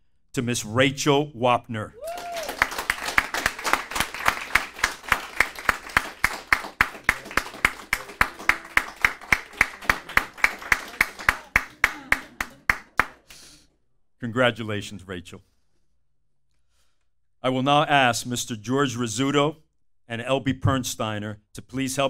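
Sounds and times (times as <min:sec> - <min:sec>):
audience applauding: 0:02.0 - 0:13.3
close loud hand clapping: 0:02.0 - 0:13.4.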